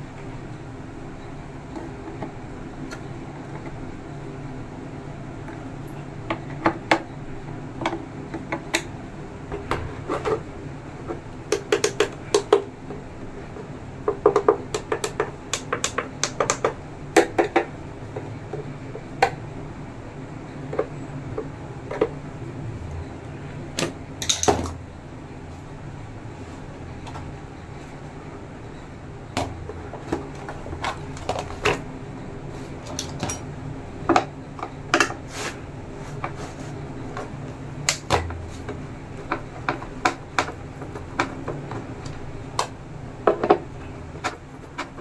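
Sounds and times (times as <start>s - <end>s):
steady low hum: 0.0s - 45.0s
rubbing rustle: 35.2s - 36.8s.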